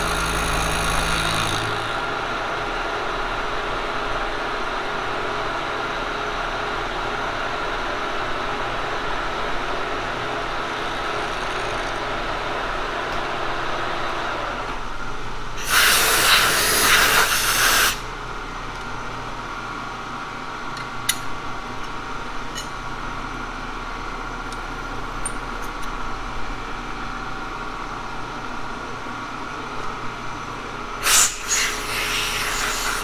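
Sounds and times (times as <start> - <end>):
face mill cutting metal: 0.0 - 2.2, 15.6 - 18.0
milling machine running: 0.0 - 2.9
compressed air blast: 15.6 - 18.0, 31.0 - 33.0.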